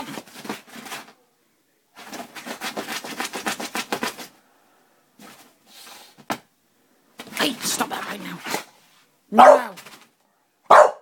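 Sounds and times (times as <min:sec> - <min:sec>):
dog scratching mattress fabric: 0:02.0 - 0:04.3.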